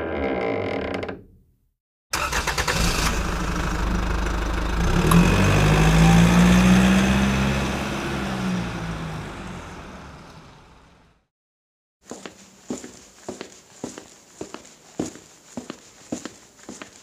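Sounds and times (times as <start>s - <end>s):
car engine starting and revving: 2.2s - 11.2s.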